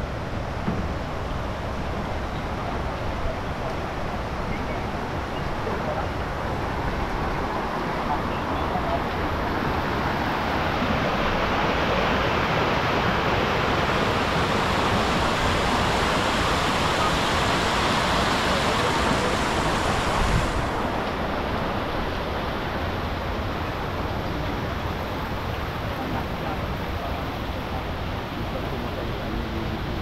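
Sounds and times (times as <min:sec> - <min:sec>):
river rushing over rapids: 0:00.0 - 0:30.0.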